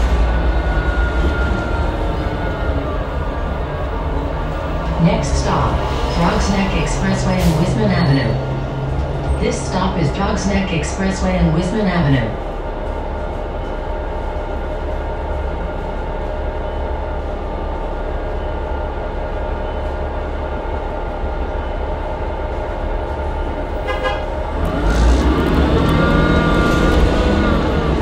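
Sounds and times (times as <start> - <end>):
bus engine running: 0.0 - 28.0
rising transmission whine: 24.4 - 28.0.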